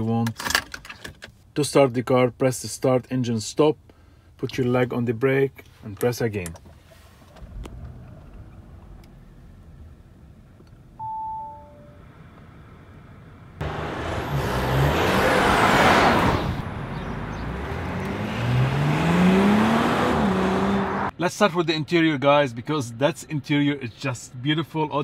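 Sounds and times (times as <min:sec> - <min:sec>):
engine note rising: 0:07.4 - 0:21.1
two-note falling chime: 0:11.0 - 0:12.0
car driving past: 0:12.0 - 0:21.1.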